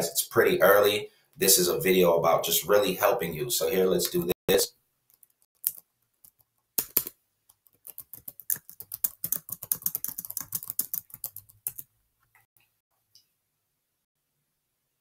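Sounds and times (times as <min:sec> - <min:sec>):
typing on computer keyboard: 0:05.1 - 0:11.9.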